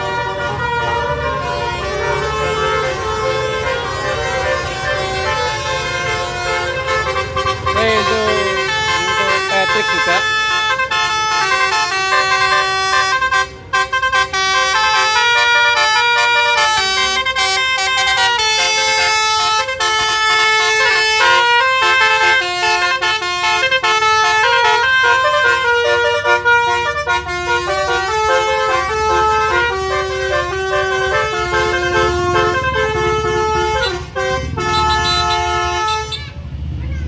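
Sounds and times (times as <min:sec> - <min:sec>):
musical air horn playing tune: 0:00.0 - 0:36.3
bus engine rumble: 0:00.0 - 0:37.0.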